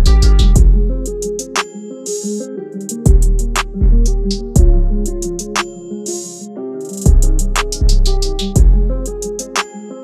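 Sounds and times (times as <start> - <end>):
deep bass notes: 0.0 - 1.0, 3.1 - 5.6, 7.1 - 9.1.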